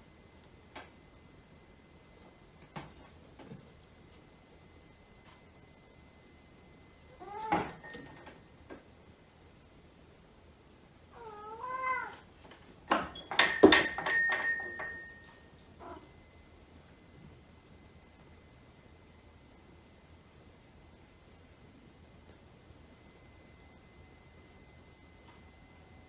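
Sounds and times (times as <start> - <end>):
cat meowing: 7.1 - 7.7, 11.1 - 12.2, 15.8 - 16.1
metal ladder clatter and ringing: 13.1 - 15.3.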